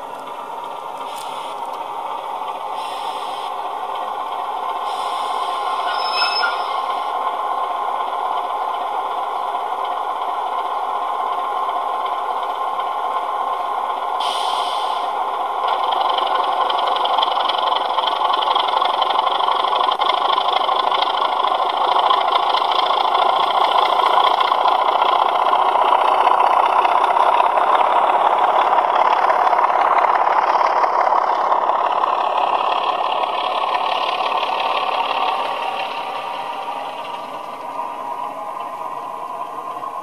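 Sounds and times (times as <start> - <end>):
diesel engine through small speakers: 0.0 - 40.0
higher tone: 5.8 - 7.1.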